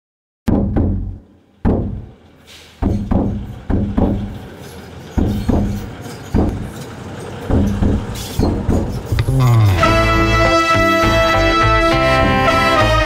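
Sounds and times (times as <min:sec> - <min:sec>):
deep drum hits: 0:00.5 - 0:02.2, 0:02.8 - 0:04.4, 0:07.5 - 0:10.9.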